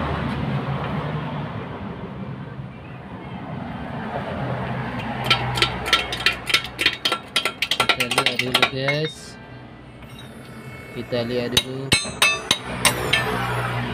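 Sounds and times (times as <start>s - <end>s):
metal striking steel clinks: 5.2s - 9.4s, 11.6s - 13.5s
steady low hum: 5.3s - 13.9s.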